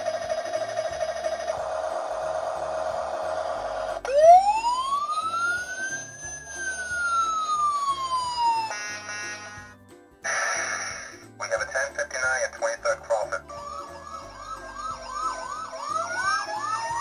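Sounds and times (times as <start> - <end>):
toy siren wailing: 0.0 - 9.7, 13.4 - 17.0.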